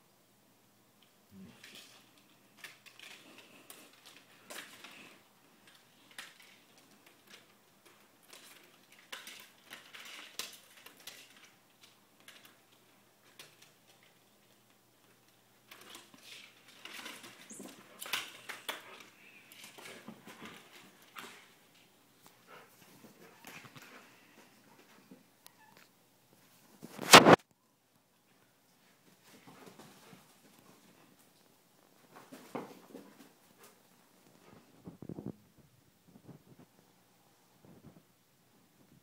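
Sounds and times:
dog and cat scuffling on carpet: 1.6 - 25.3, 28.3 - 35.2.

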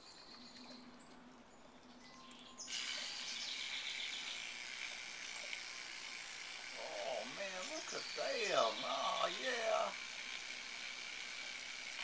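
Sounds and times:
electric toothbrush buzzing: 2.6 - 12.0.

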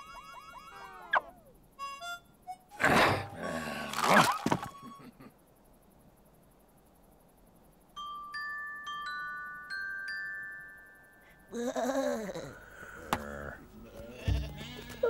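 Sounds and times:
glockenspiel chime notes: 8.0 - 11.5
sheep bleating: 13.2 - 15.0.

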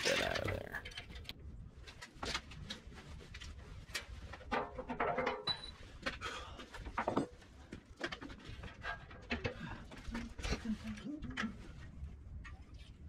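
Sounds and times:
metal knocks clanks and scrapes: 3.8 - 5.9.

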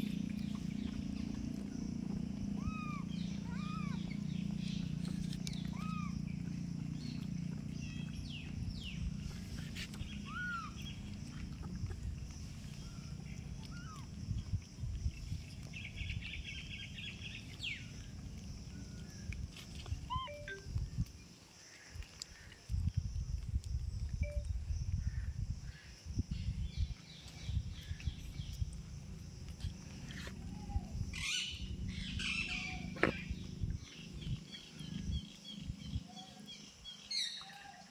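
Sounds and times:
birds chirping: 0.0 - 21.1, 26.3 - 37.6
bird chirps: 20.0 - 21.1
fast bird trill: 20.1 - 20.7
rumble and bumps near microphone: 32.7 - 36.0.

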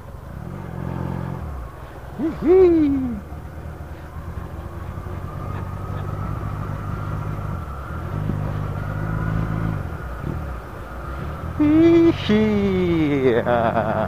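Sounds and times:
road and wind noise: 0.0 - 14.0
motorcycle engine running: 2.9 - 12.0.

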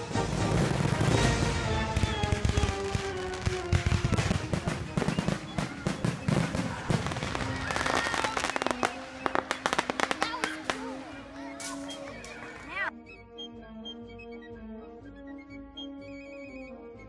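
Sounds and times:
fireworks bangs: 0.0 - 12.7
fireworks crackling: 0.0 - 12.9.

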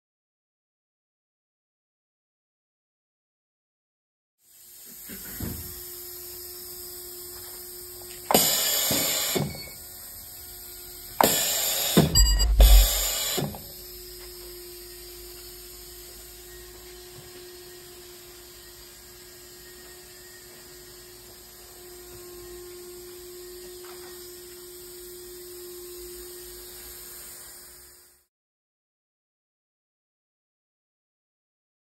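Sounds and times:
electrical hum: 4.7 - 28.2
faint held tone: 12.2 - 13.2.

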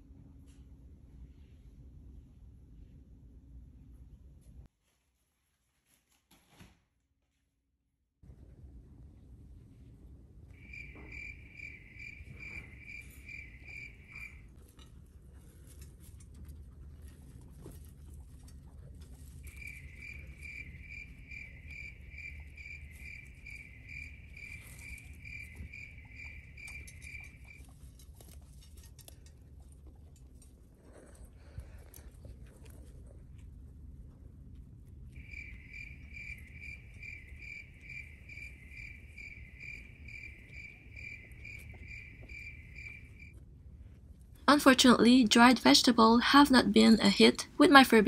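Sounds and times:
guinea pigs chewing: 10.6 - 44.5.

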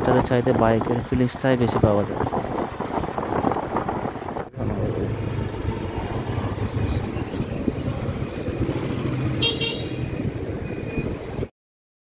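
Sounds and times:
road noise: 0.0 - 11.5
scooter engine running: 4.6 - 10.5.

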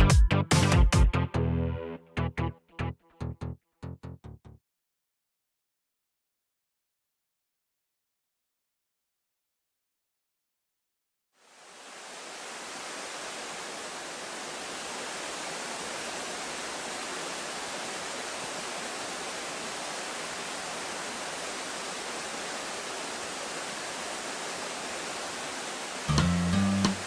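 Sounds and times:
mountain stream rushing: 11.4 - 27.0.

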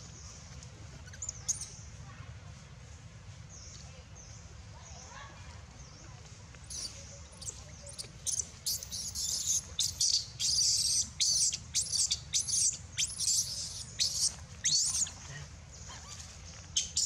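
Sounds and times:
infant monkey screaming: 8.2 - 15.2.

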